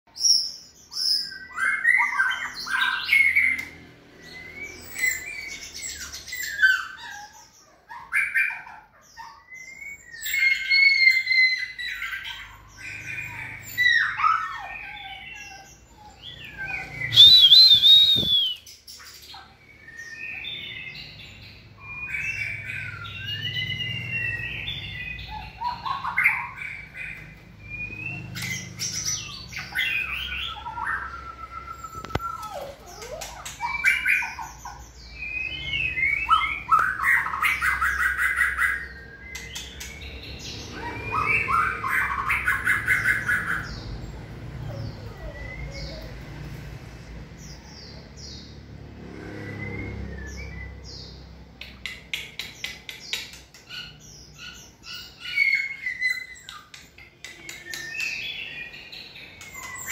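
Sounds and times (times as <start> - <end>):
birds singing: 0.1 - 59.9.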